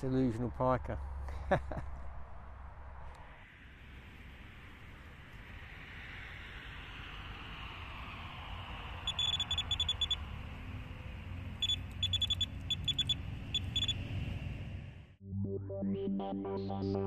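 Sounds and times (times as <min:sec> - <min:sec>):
bite alarm beeping: 0:09.1 - 0:10.2, 0:11.6 - 0:14.0.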